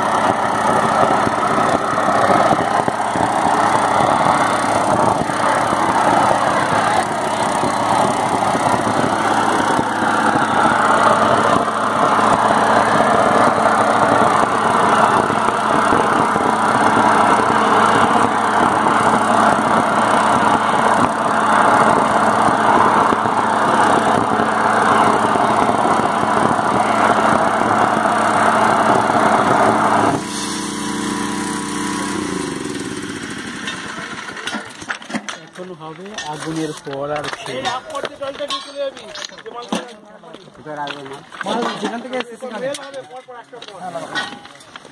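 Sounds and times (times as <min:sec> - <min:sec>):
burner rushing: 0:00.0 - 0:35.0
motor humming: 0:00.0 - 0:35.6.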